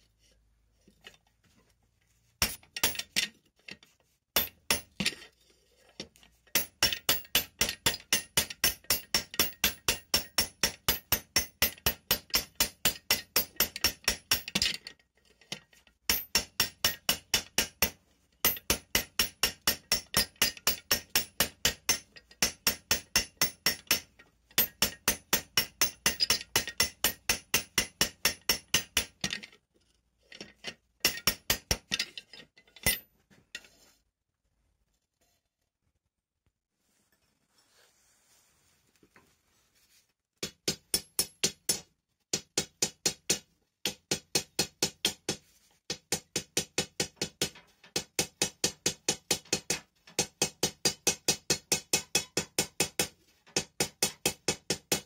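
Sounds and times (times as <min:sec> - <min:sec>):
hammer striking metal with ringing clink: 0:16.1 - 0:29.1, 0:51.0 - 0:52.9.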